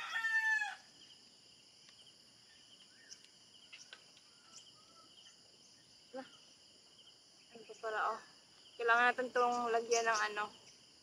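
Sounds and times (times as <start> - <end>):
rooster crowing: 0.0 - 0.9
insects chirring: 0.0 - 11.0.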